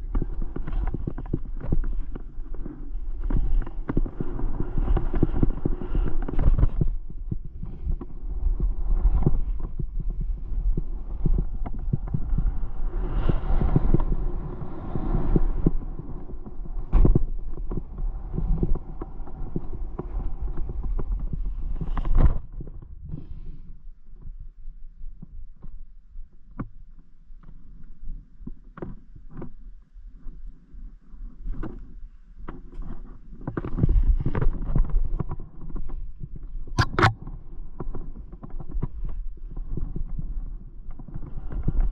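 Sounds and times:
wind rumble on microphone: 0.0 - 41.9.

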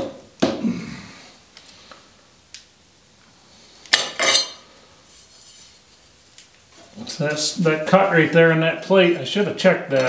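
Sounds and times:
metal tool clinking on steel plate: 4.0 - 4.6.

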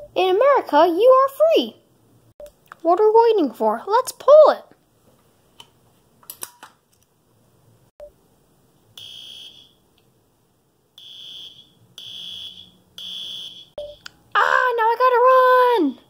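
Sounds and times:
fire alarm high beeping: 9.0 - 9.8, 11.0 - 14.0.

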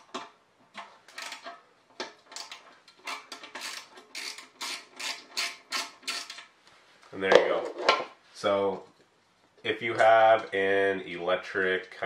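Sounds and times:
socket ratchet clicking: 2.3 - 6.4.

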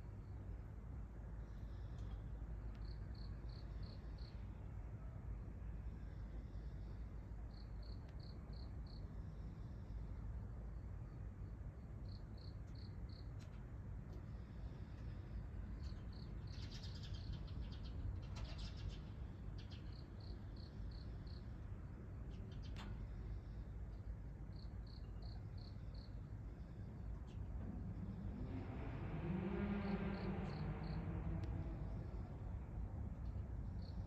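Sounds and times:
cricket chirping: 24.5 - 26.3, 33.7 - 34.0.

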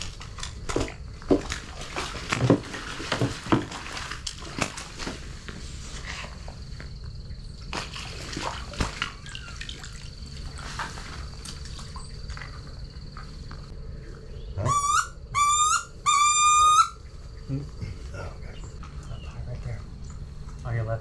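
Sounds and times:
squealing duck calls: 14.6 - 17.0.

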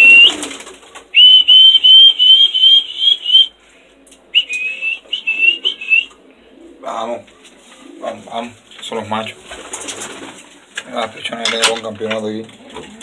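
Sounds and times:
person whistling high note: 0.0 - 0.4, 1.2 - 3.5, 4.4 - 6.1.

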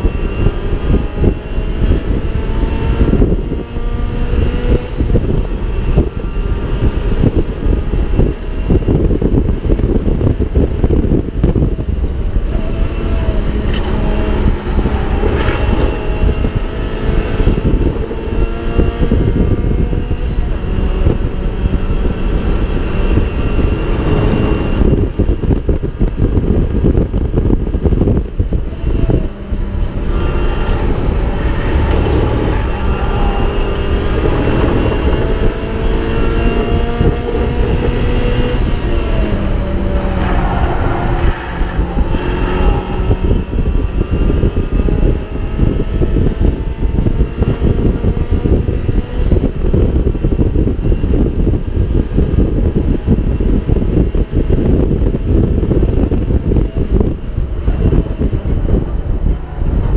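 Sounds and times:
race car engine revving: 0.0 - 59.9
wind and road rumble: 0.0 - 59.9.

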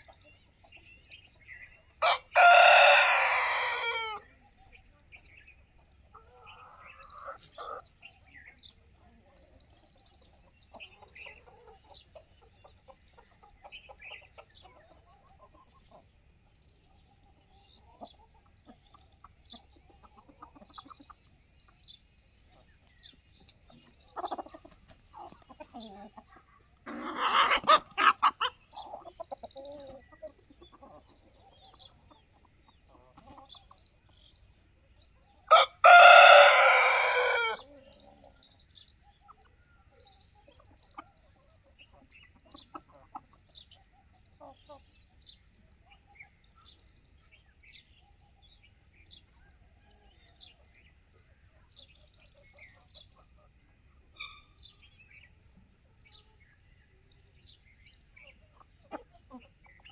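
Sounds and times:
chickens clucking softly: 0.0 - 59.9
rooster crowing: 2.0 - 4.2, 35.5 - 37.6.

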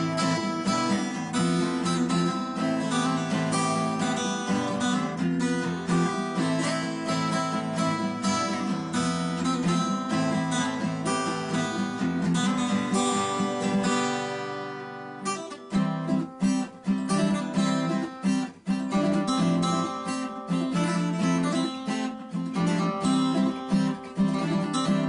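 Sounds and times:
strummed acoustic guitar: 0.0 - 25.0.

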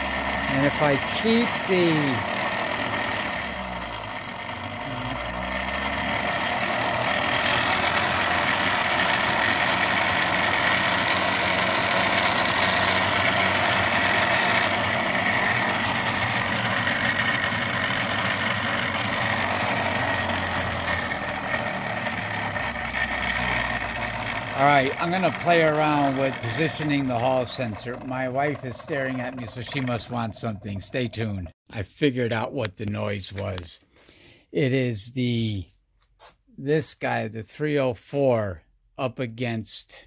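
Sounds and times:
rotor spinning loudly: 0.0 - 31.5.

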